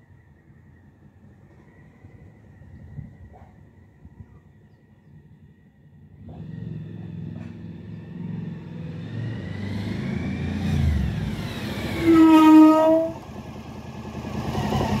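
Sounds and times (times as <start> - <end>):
brake squeal: 11.8 - 13.3
motorcycle engine approaching: 12.7 - 15.0.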